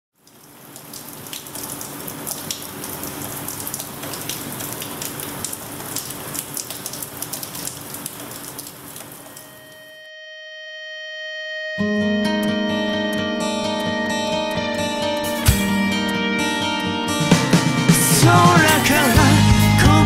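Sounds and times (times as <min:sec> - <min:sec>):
rain falling: 0:00.2 - 0:09.9.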